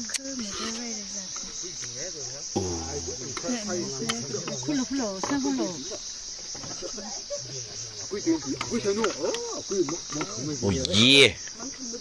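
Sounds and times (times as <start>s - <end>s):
crickets chirping: 0.0s - 12.0s
people talking: 2.6s - 5.9s, 10.5s - 12.0s.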